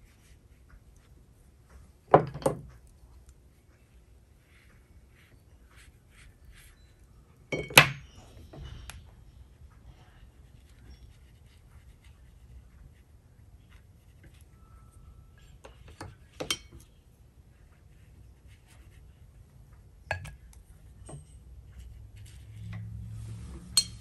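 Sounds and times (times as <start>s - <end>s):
faint low hum: 0.0s - 24.0s
quiet brushwork: 2.7s - 7.5s, 8.1s - 24.0s
brush clinking against dish: 23.6s - 24.0s.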